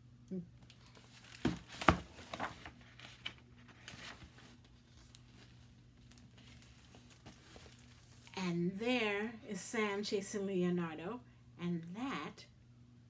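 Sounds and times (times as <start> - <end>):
book page turning: 0.7 - 8.4
paper rustling: 0.7 - 8.4
book knock: 1.4 - 2.5.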